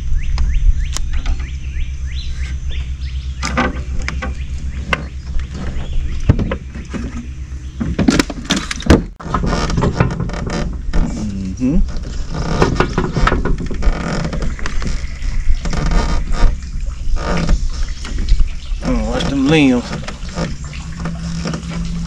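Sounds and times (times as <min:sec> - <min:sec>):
bird chirps: 0:00.0 - 0:06.5, 0:14.4 - 0:21.0
low steady rumble: 0:00.0 - 0:22.0
knocks and clatter of gear: 0:03.4 - 0:11.3, 0:11.9 - 0:22.0.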